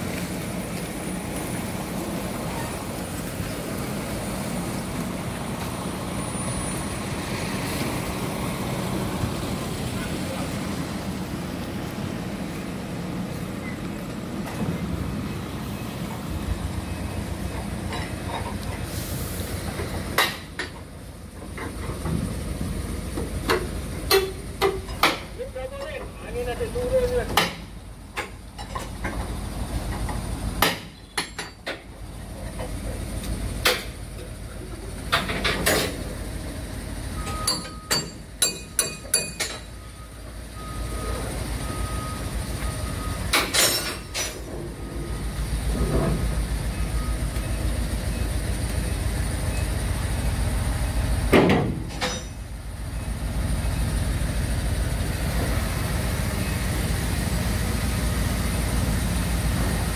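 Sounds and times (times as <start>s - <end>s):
metal clanks and knocks: 17.5s - 18.8s, 19.8s - 22.3s, 23.2s - 26.0s, 27.3s - 32.8s, 35.1s - 36.0s, 37.2s - 39.7s, 43.3s - 44.8s, 51.3s - 52.4s.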